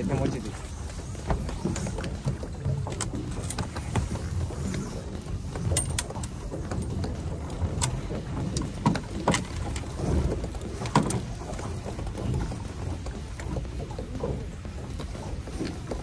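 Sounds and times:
boat rumble: 0:00.0 - 0:16.0
sharp knocks and clicks: 0:05.3 - 0:16.0.

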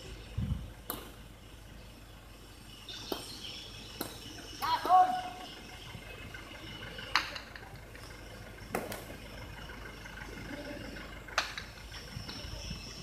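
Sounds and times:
hard ball cracking against walls: 0:00.9 - 0:01.2, 0:04.0 - 0:04.2.

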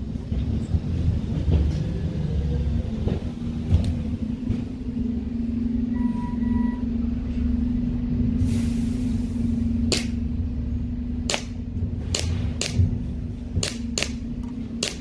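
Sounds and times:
air pistol shots popping: 0:09.9 - 0:10.2, 0:11.2 - 0:13.0, 0:13.6 - 0:14.2, 0:14.8 - 0:15.0.

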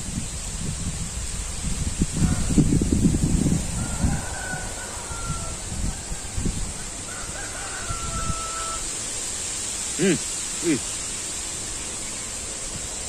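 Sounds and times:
faint rooster crowing: 0:02.1 - 0:09.1.

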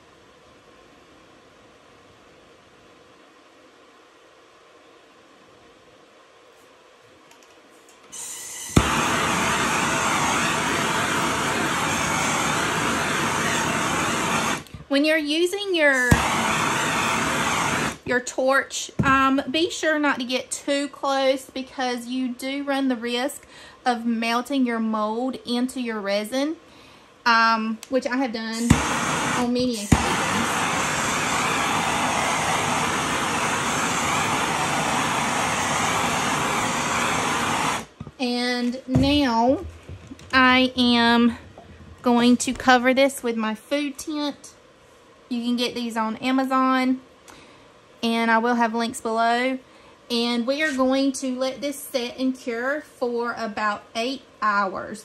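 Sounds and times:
gas torch hissing: 0:08.1 - 0:14.8, 0:15.9 - 0:18.1, 0:28.5 - 0:38.1
torch flame roaring hiss: 0:08.1 - 0:14.8, 0:15.9 - 0:18.1, 0:28.5 - 0:38.1
torch igniter click: 0:08.2 - 0:14.8, 0:16.1 - 0:18.0, 0:28.6 - 0:37.9.

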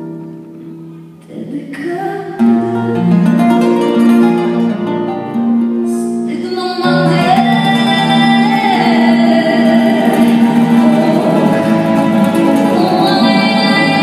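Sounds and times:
acoustic guitar: 0:00.0 - 0:14.0
woman singing: 0:01.2 - 0:04.1, 0:05.9 - 0:14.0.

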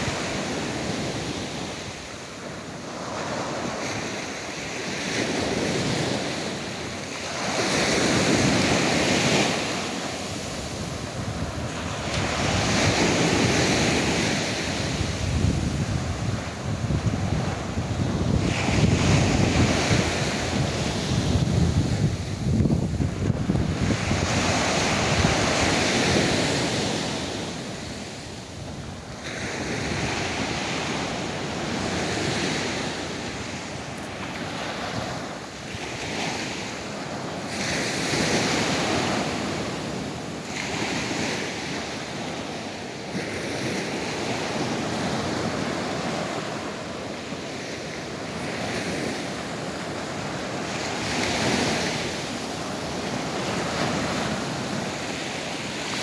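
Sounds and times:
waves breaking on shore: 0:00.0 - 0:56.0
wind rumbling on microphone: 0:00.0 - 0:56.0.

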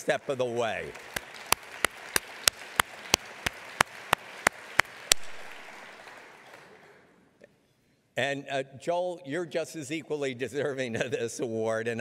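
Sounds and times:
audience applause: 0:00.0 - 0:07.1
sharp hand claps: 0:00.9 - 0:07.0.

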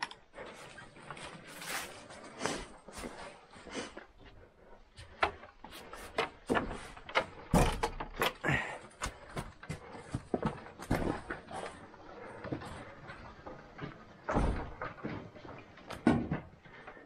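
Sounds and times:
wooden knocks and clatter: 0:04.8 - 0:17.0.

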